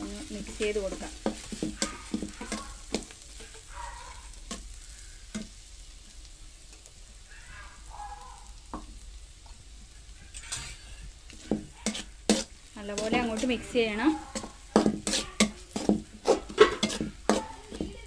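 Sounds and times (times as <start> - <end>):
spatula scraping metal pan: 0.0 - 3.8, 10.3 - 18.0
faint sizzle of frying: 0.0 - 18.0.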